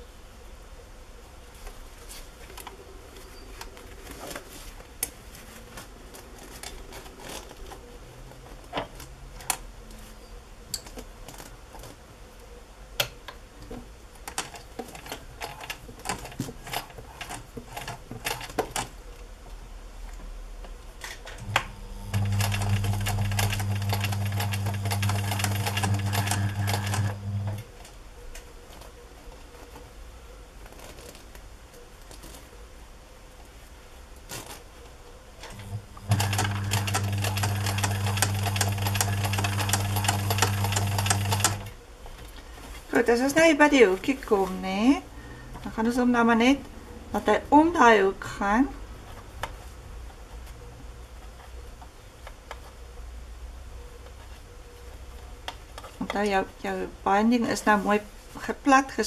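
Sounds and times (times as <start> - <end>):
fabric rustling: 1.5 - 9.4, 28.6 - 32.8
sewing machine running: 21.4 - 27.6, 35.5 - 41.7.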